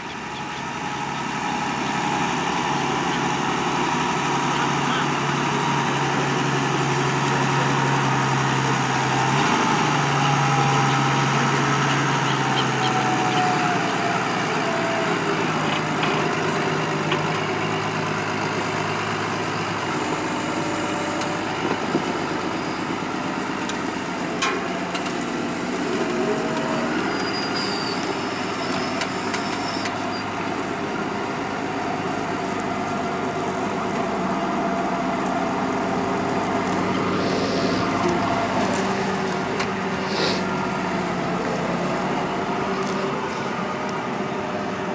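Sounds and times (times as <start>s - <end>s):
tractor diesel engine under load: 0.0s - 44.9s.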